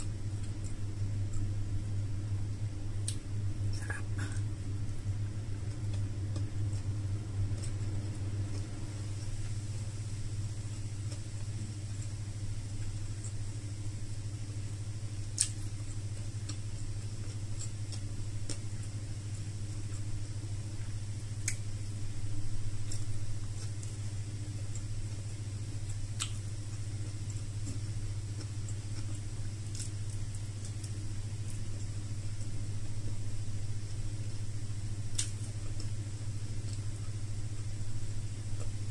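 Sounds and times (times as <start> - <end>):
steady low hum: 0.0 - 38.9
person chewing: 14.6 - 20.2, 21.4 - 21.6, 22.5 - 33.2, 35.0 - 37.8, 38.4 - 38.9.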